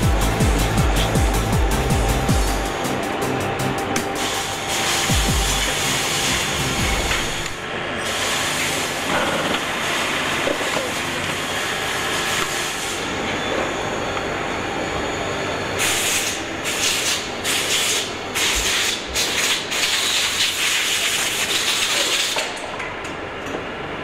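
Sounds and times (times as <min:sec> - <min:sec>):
machinery din: 0:00.0 - 0:07.6.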